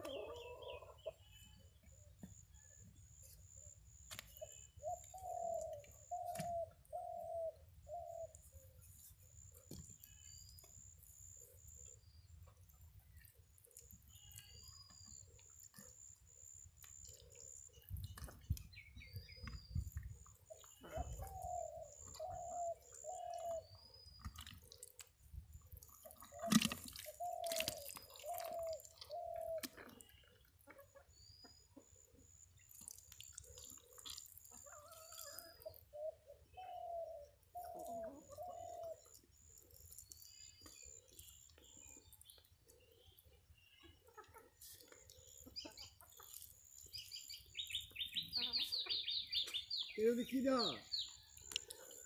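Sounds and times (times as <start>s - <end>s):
small birds chirping: 0.0s - 52.0s
mud squelching and dripping: 3.8s - 31.2s, 31.9s - 36.0s, 37.4s - 43.5s, 44.6s - 48.0s, 50.9s - 52.0s
dove cooing: 4.8s - 8.3s, 20.8s - 23.7s, 26.2s - 29.9s, 35.9s - 39.1s.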